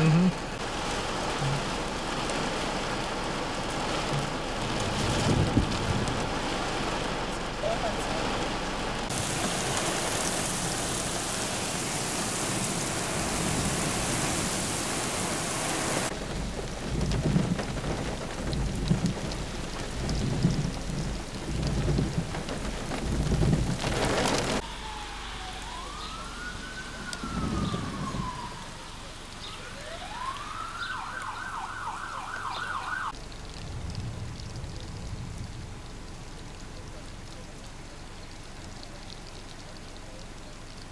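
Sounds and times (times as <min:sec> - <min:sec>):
heavy rain pouring: 0:00.0 - 0:40.9
low rumbling thumps: 0:04.1 - 0:06.3, 0:16.1 - 0:24.6
emergency vehicle siren: 0:24.6 - 0:33.2.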